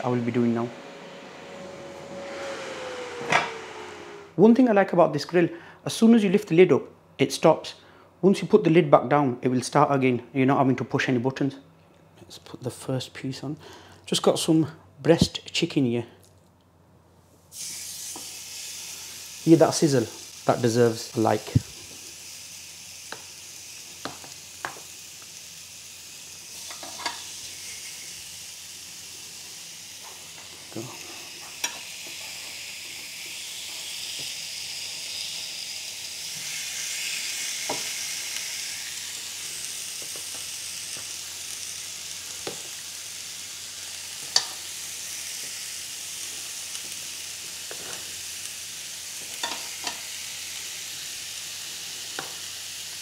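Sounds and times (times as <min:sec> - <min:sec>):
chicken sizzling on a grill: 0:17.5 - 0:53.0.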